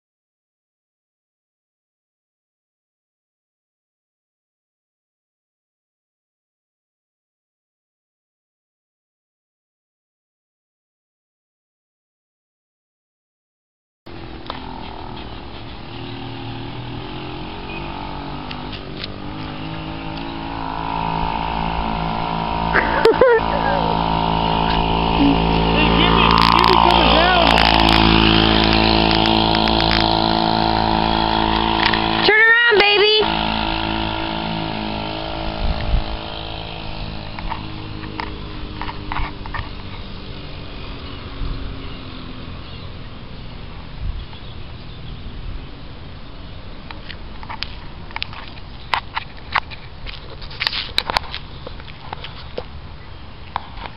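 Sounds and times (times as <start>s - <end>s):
small gasoline engine running: 14.1s - 43.7s
outdoor background noise: 14.1s - 53.9s.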